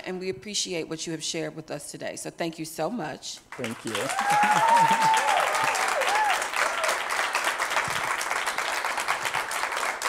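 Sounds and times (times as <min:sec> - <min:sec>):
audience applauding: 0:03.5 - 0:10.0
voices rising over clapping: 0:03.5 - 0:10.0.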